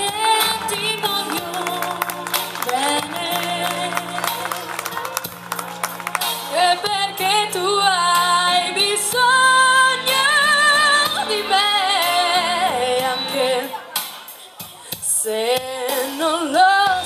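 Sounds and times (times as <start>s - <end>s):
woman singing into a microphone: 0.0s - 4.7s, 6.5s - 17.0s
instrumental accompaniment: 0.0s - 15.1s.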